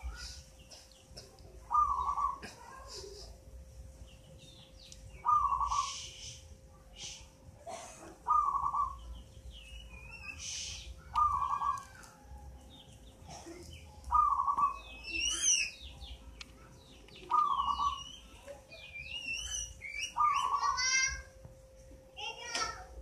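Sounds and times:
small birds chirping: 0.0 - 3.3, 3.9 - 21.2
dove cooing: 1.6 - 2.8, 5.2 - 6.0, 7.7 - 9.1, 10.4 - 12.0, 14.1 - 15.5, 17.2 - 18.0.

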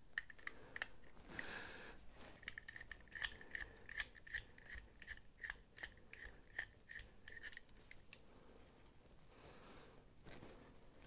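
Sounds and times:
ratcheting screwdriver clicking: 0.2 - 1.0, 2.4 - 8.2.

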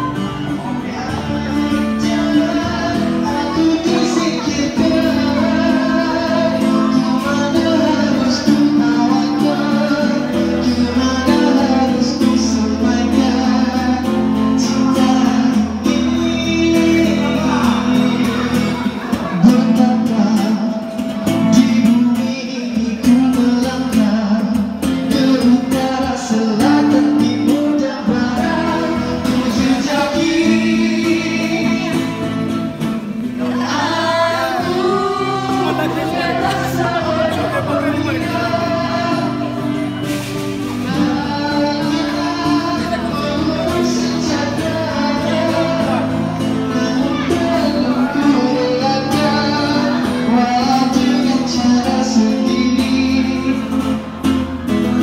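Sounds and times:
acoustic guitar: 0.0 - 55.0
person singing: 0.0 - 55.0.

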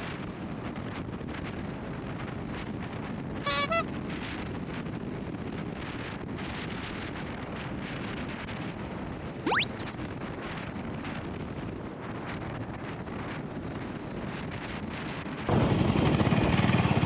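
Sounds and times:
short pitched tones: 3.5 - 3.8, 9.5 - 10.0.

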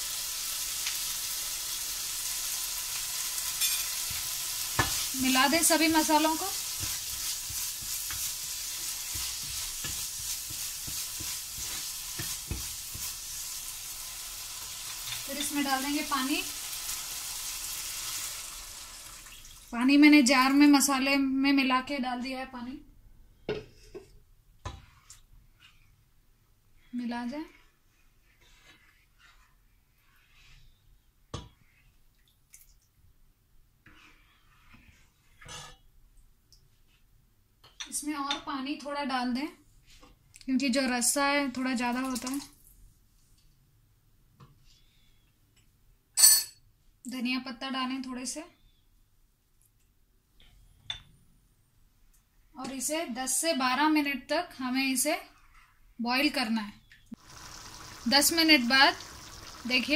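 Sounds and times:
food sizzling in frying pan: 0.0 - 19.8, 57.2 - 59.9.

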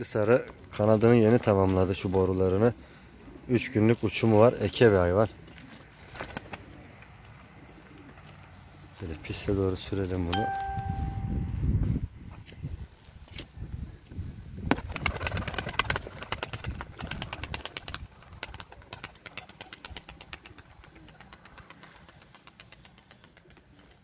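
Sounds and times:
pigeon wings flapping: 6.0 - 6.8, 14.7 - 24.0.

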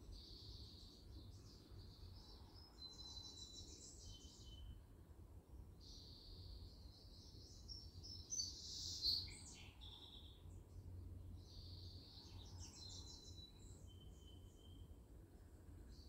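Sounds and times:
wild birds calling and singing: 5.8 - 14.9.

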